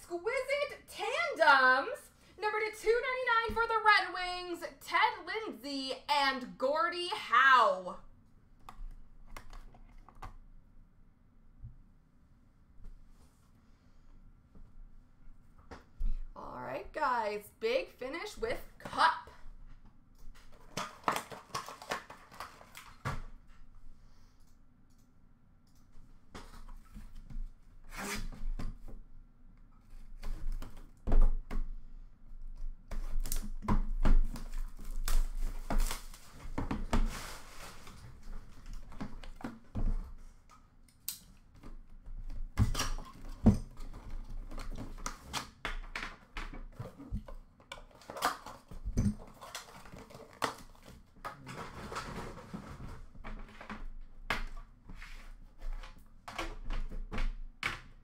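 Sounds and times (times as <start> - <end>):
cardboard sliding and rubbing: 36.9 - 38.0.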